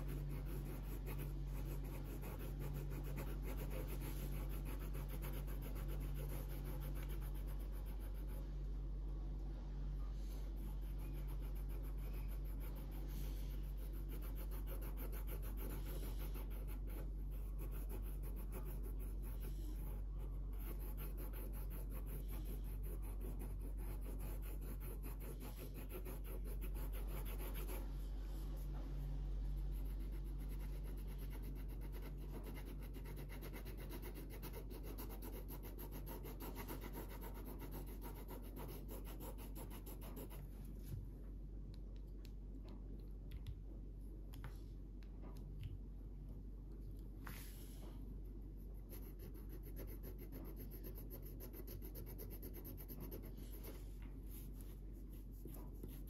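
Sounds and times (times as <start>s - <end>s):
marker rubbing on paper: 0.0s - 8.4s, 10.3s - 28.0s, 48.8s - 56.0s
low hum: 0.0s - 20.9s.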